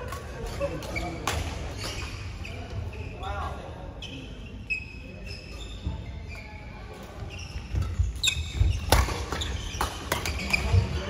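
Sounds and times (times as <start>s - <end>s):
shoes squeaking on court: 4.0s - 11.0s
racket hitting shuttlecock: 7.7s - 10.7s.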